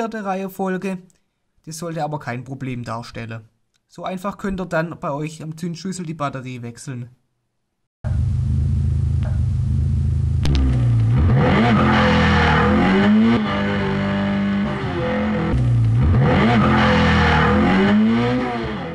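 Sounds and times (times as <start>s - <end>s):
car engine revving: 8.1s - 18.9s.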